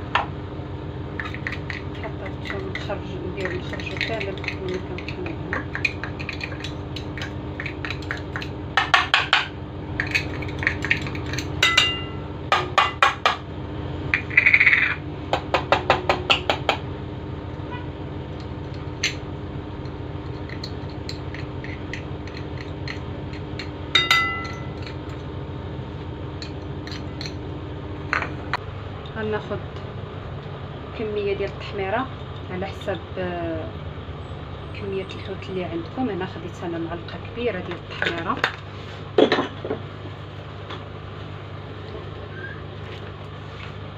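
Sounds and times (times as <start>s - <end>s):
ceramic bowl ringing: 11.6s - 12.3s, 23.9s - 25.0s.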